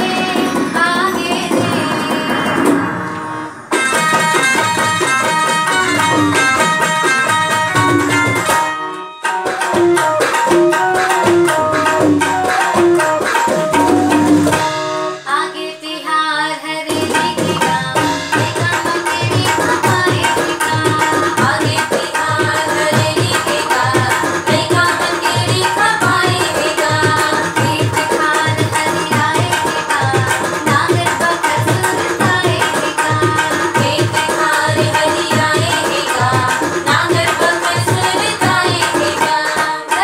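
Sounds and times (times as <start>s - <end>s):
women singing together: 0.0s - 2.6s, 15.3s - 40.0s
tabla beat: 0.0s - 40.0s
harmonium: 3.7s - 40.0s
electronic keyboard: 7.8s - 15.4s.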